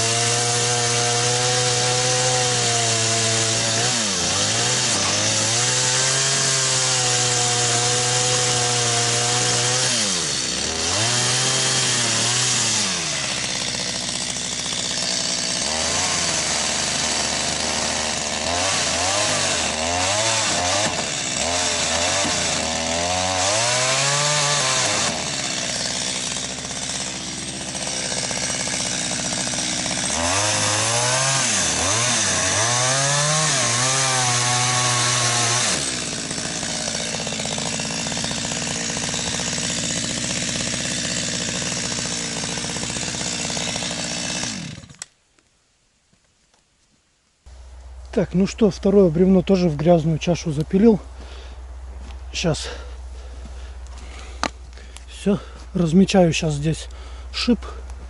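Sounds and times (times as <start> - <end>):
chainsaw cutting log: 0.0 - 45.2, 47.5 - 58.0.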